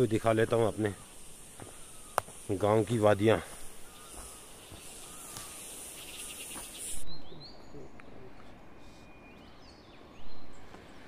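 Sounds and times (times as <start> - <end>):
high-pitched insect buzzing: 0.0 - 7.0.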